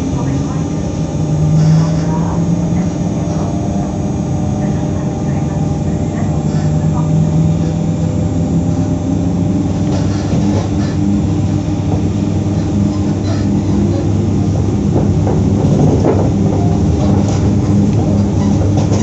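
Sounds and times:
electric train humming: 0.0s - 19.0s
held low tones: 0.0s - 19.0s.

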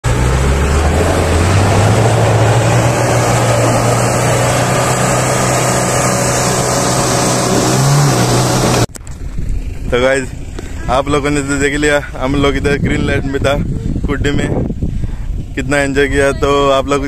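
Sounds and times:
jeep engine revving hard: 0.0s - 8.9s.

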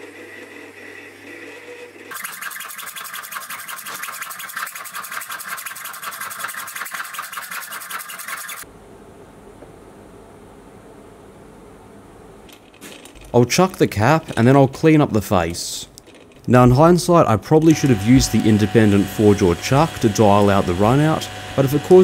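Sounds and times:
lathe running: 0.0s - 8.6s, 17.6s - 22.0s
hacksaw sawing through steel: 2.1s - 8.6s.

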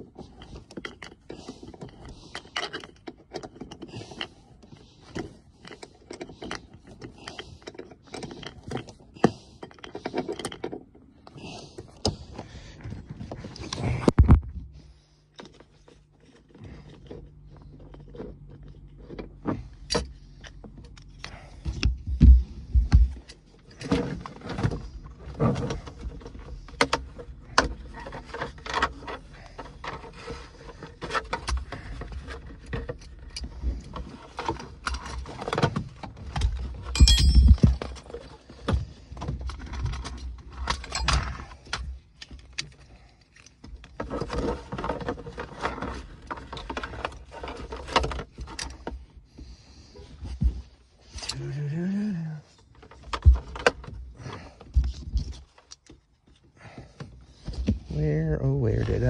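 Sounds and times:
key working a bolt: 36.9s - 37.8s
metal belt hardware clinking: 36.9s - 38.1s
heavy thumps: 37.0s - 38.0s.

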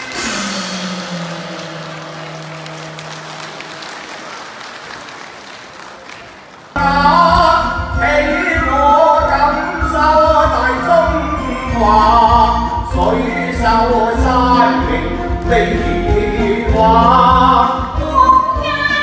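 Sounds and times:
held instrumental note: 0.0s - 4.3s
applause: 1.2s - 6.8s
opera singing with instruments: 6.8s - 19.0s.

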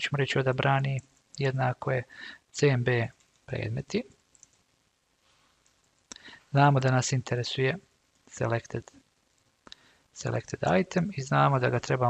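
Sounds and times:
faint keyboard keystroke clicks: 4.3s - 4.6s.

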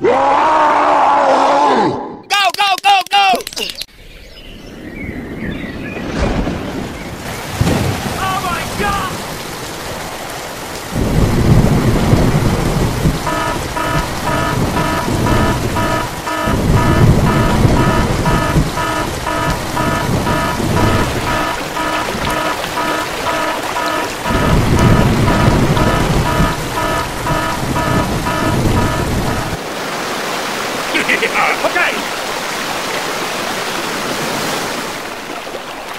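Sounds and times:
rolling thunder: 5.2s - 29.6s
heavy rain: 6.0s - 35.9s
repeating beeping tone: 13.2s - 29.6s.

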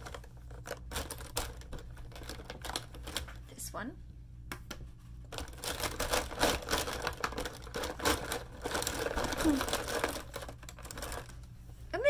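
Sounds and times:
plastic markers rattling: 0.0s - 3.5s, 5.3s - 11.4s.

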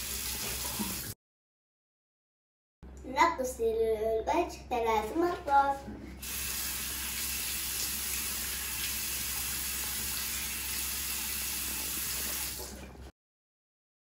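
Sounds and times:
water running from a tap: 0.0s - 1.2s, 6.2s - 13.1s.

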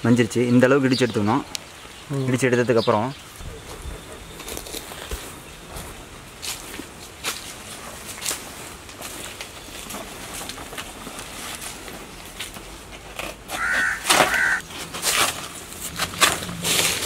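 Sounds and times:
banana leaves ripping and snapping: 8.1s - 17.0s
crow cawing: 13.5s - 14.6s.

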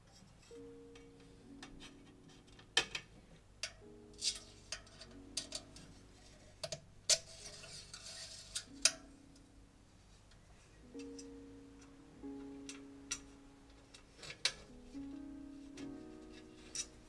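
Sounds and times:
scraping rustle: 4.2s - 8.9s.

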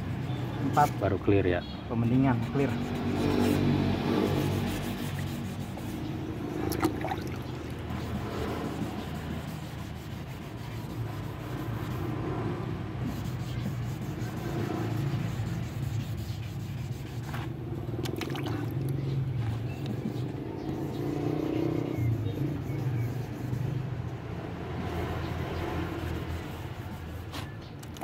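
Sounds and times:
sandpaper rubbing on painted metal: 0.0s - 18.0s, 19.5s - 28.0s.

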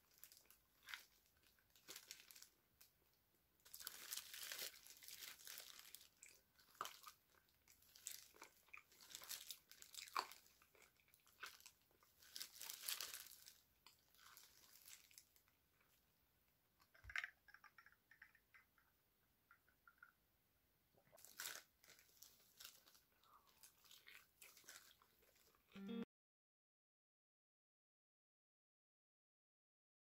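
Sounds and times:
plastic gloves crinkling: 0.0s - 2.9s, 3.6s - 16.0s, 21.1s - 25.7s
crunching bites and chewing: 7.8s - 15.2s, 21.1s - 25.6s.

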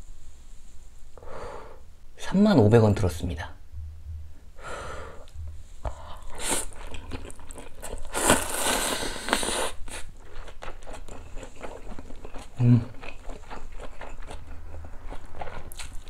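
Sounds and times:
man slurping noodles: 8.1s - 10.0s.

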